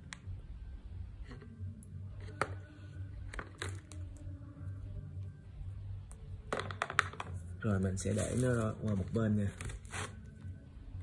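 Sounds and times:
steady low hum: 0.0s - 6.6s.

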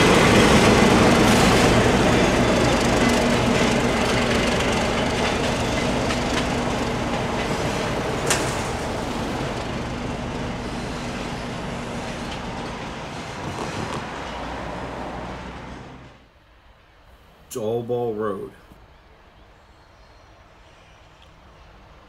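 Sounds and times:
diesel locomotive engine hum: 0.0s - 17.1s.

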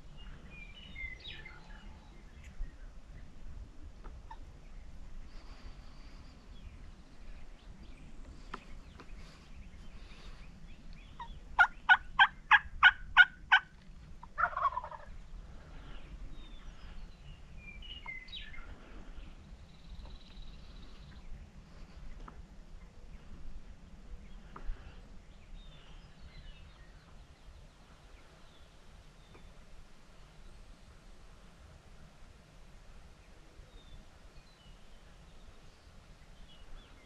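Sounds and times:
turkey hen yelps: 11.2s - 13.7s, 14.3s - 15.1s
rattling turkey gobble: 11.2s - 15.1s.

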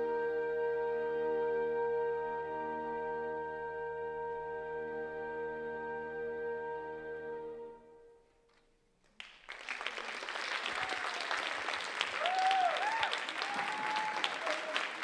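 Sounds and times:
audience applause: 9.2s - 15.0s
whooping cheers: 10.1s - 15.0s.

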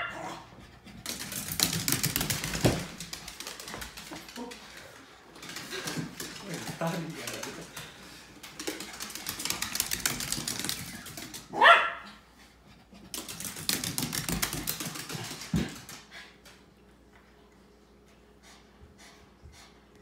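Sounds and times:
dog claws clicking on hardwood floor: 1.0s - 11.5s, 13.1s - 16.0s.

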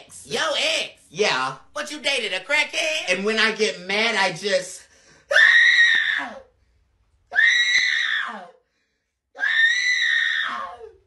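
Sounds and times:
person screaming in anger: 5.3s - 6.5s, 9.4s - 11.0s.

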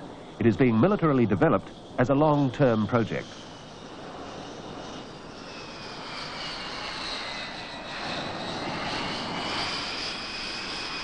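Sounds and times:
jet engine whine: 0.0s - 11.0s.

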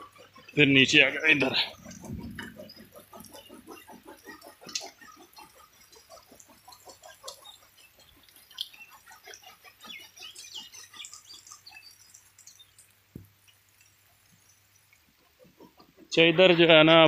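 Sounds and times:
low thump: 2.0s - 2.6s
faint bird chirps: 6.7s - 13.0s.

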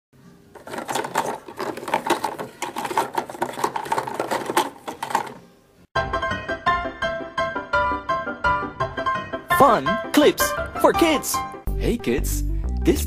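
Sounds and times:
plastic capsules clattering: 0.6s - 5.5s.

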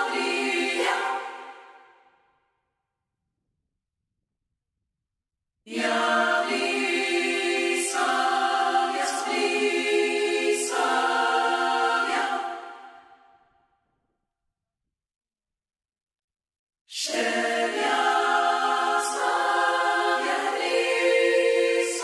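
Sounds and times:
a cappella choir singing: 0.0s - 2.2s, 5.7s - 13.4s, 16.9s - 22.0s.

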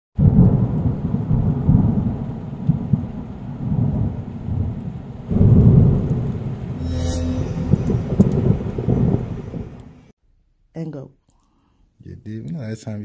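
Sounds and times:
rain: 0.2s - 6.7s
low rolling thunder: 0.2s - 6.8s.

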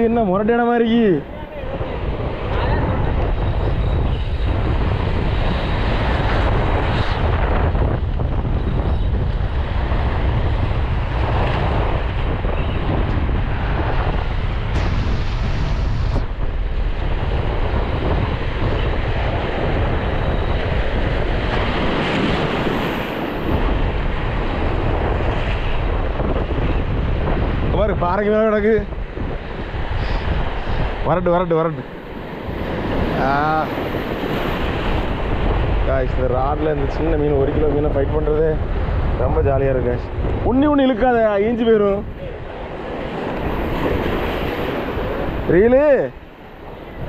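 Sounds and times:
wind buffeting microphone: 0.0s - 47.0s
sea waves on rocky shore: 28.6s - 35.8s, 40.8s - 47.0s.

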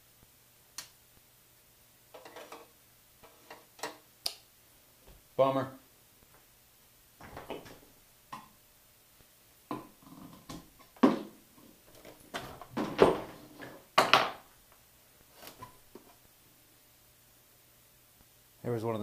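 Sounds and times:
computer tower being moved: 2.2s - 4.0s.

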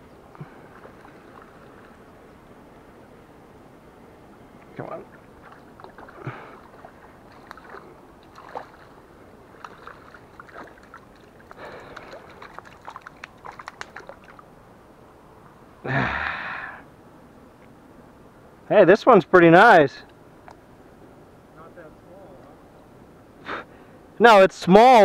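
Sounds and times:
fish splashing in shallow water: 0.3s - 2.1s, 5.1s - 14.5s.

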